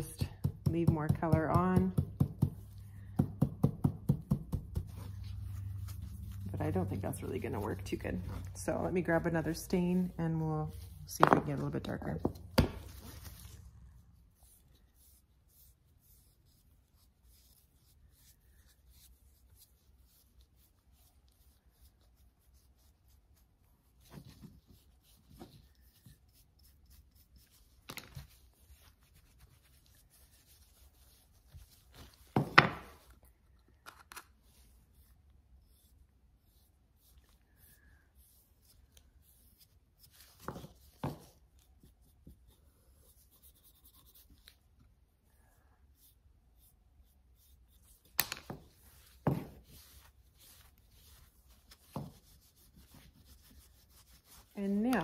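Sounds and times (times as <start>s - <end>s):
brush strokes on wood: 4.8s - 12.2s.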